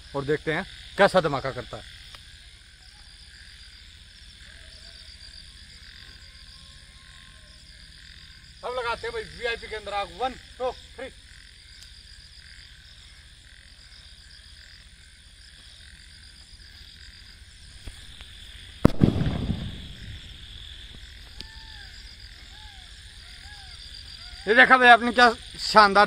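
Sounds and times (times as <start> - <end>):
firecracker bang with rumbling echo: 18.8 - 20.5.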